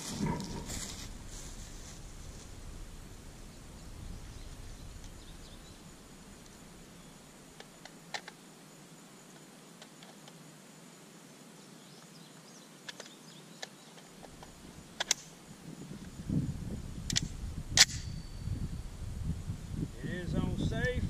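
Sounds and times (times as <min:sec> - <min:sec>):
handling noise: 0:00.0 - 0:08.3
metallic ring: 0:17.8 - 0:18.8.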